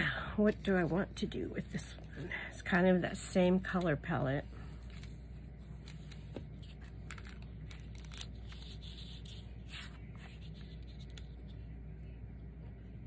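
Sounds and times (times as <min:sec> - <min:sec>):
low background hum: 0:00.0 - 0:13.0
fabric and paper rustling: 0:03.5 - 0:11.8.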